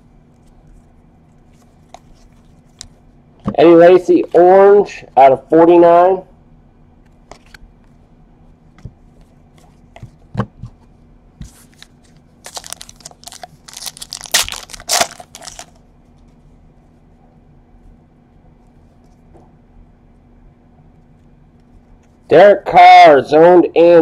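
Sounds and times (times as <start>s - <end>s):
foil wrapper crinkling: 11.6s - 15.8s.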